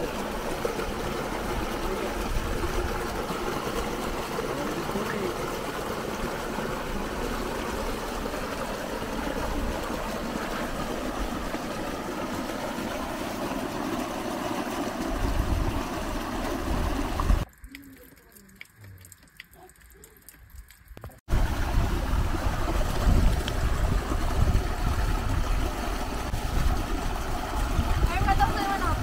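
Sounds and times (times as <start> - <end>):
cascade rushing into pool: 0.0 - 17.4, 21.3 - 29.0
wind rumbling on microphone: 14.9 - 17.4, 21.3 - 29.0
faint water drips: 17.2 - 21.3.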